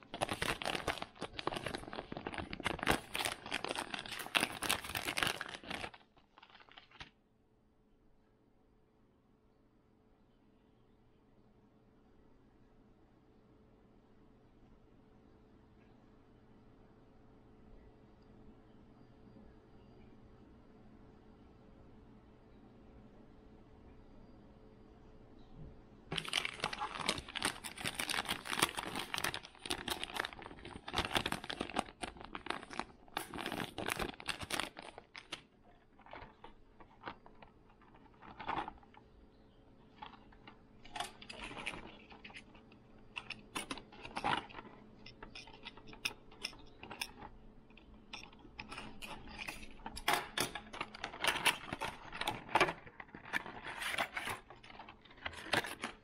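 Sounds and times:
plastic packaging clicks and crinkles: 0.0 - 7.2, 26.1 - 56.0.

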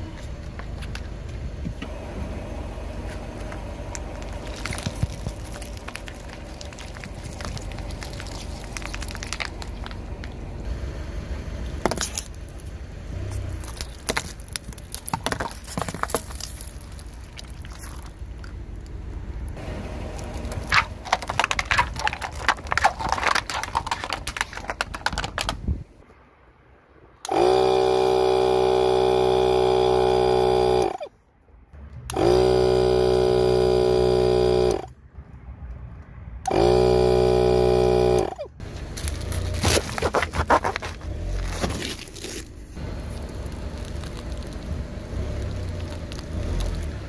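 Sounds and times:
tyre crushing plastic cups: 3.1 - 10.6, 11.8 - 18.6, 20.0 - 25.8, 38.7 - 47.0
air compressor humming: 19.3 - 23.1, 27.2 - 31.1, 32.1 - 34.9, 36.5 - 39.3.

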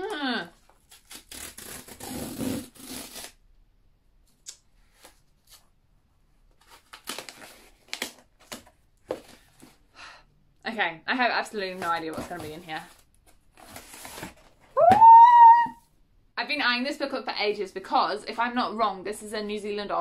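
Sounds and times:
cardboard tearing: 0.7 - 3.4, 6.6 - 9.4, 11.8 - 14.6
cardboard rustling and scraping: 11.6 - 14.7.

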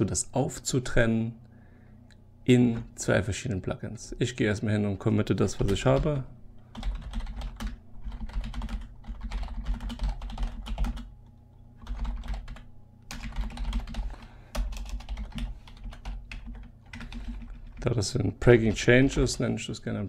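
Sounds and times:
low steady hum: 0.0 - 20.0
keyboard typing: 6.7 - 11.1, 11.8 - 17.8.

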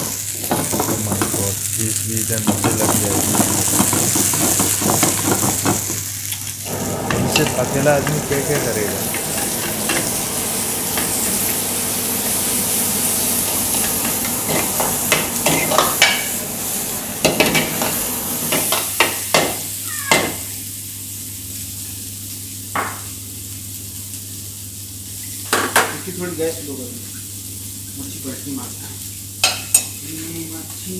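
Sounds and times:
oil sizzling in a frying pan: 0.0 - 30.9
steady low hum: 6.3 - 18.9.

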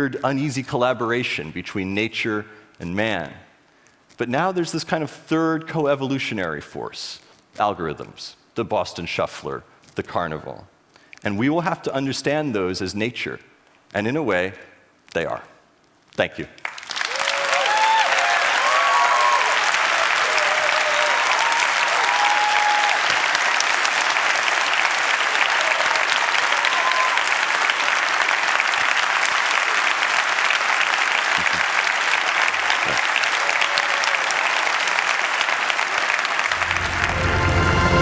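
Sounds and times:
audience applauding: 16.6 - 38.0
people cheering: 16.9 - 37.7
music: 36.6 - 38.0.

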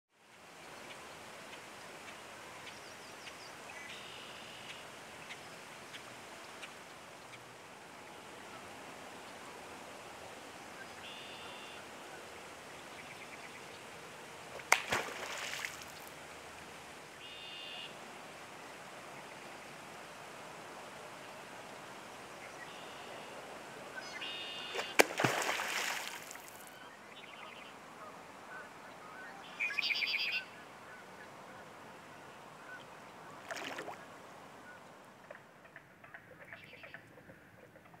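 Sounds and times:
outdoor hiss: 0.2 - 30.9
bird calls: 10.8 - 11.8, 17.2 - 18.0, 22.4 - 34.9, 35.6 - 38.0
loud splash: 14.6 - 16.1, 24.8 - 26.7, 33.4 - 34.0.

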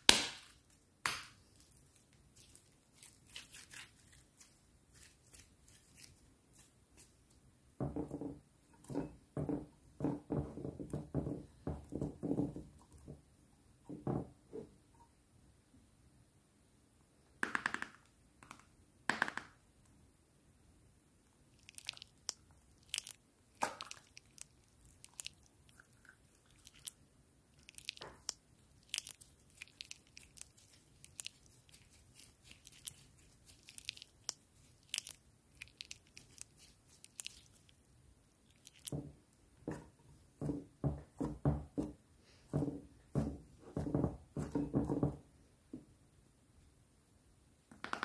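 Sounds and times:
slime crackling and popping: 21.6 - 27.0, 27.6 - 37.8, 38.4 - 38.9.

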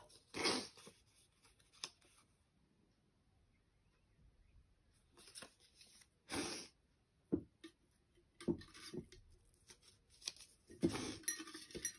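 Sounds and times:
paper rustling: 5.0 - 6.2, 8.7 - 10.9.

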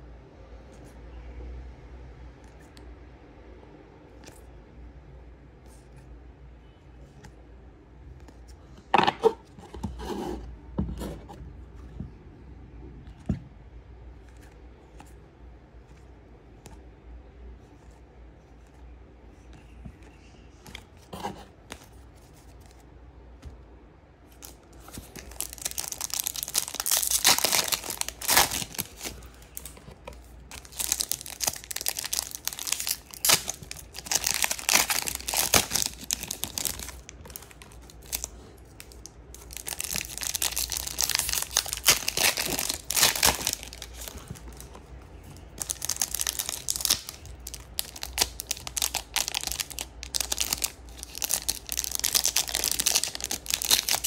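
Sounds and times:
foil wrappers tearing and crinkling: 25.0 - 29.7, 30.5 - 44.7, 45.5 - 54.0.

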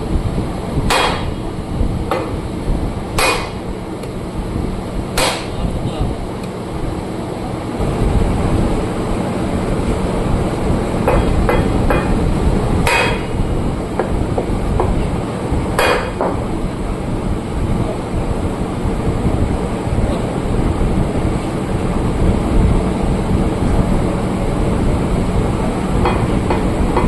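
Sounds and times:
steady low rumble: 0.0 - 27.0
hammer striking metal: 0.9 - 1.4, 3.2 - 3.6, 5.2 - 5.6, 11.1 - 12.2, 12.8 - 13.4, 15.8 - 16.4.

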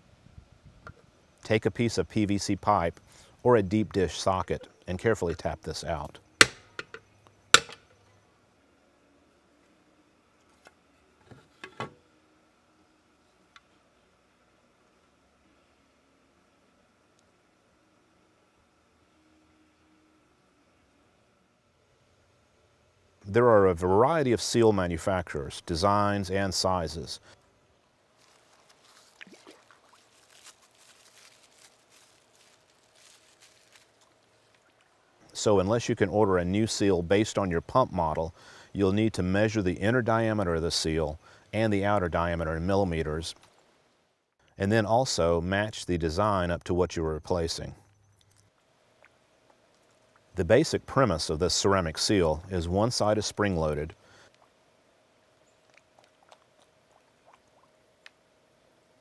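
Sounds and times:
paper towel crumpling: 28.2 - 34.6.

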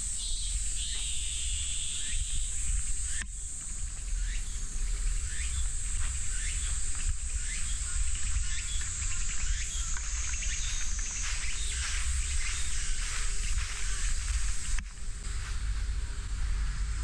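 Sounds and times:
insects droning: 0.0 - 17.0
low rumble: 4.6 - 17.0.

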